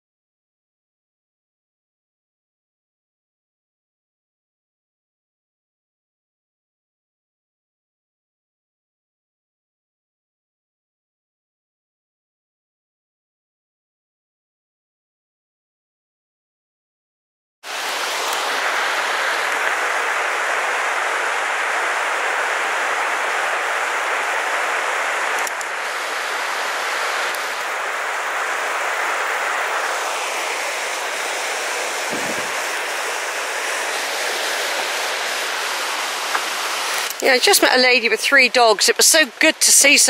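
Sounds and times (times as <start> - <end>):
water rushing over rocks: 17.7 - 40.0.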